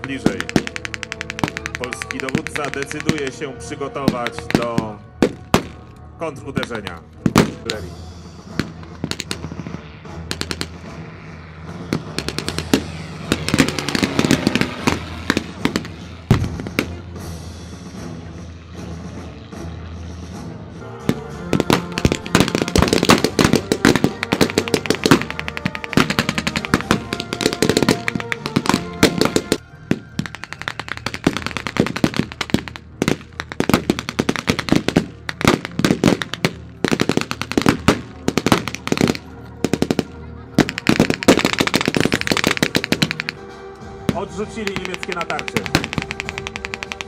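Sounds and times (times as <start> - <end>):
rifles firing blanks: 0.0 - 6.0, 10.3 - 10.8, 21.1 - 43.5, 44.1 - 47.0
background music: 0.0 - 47.0.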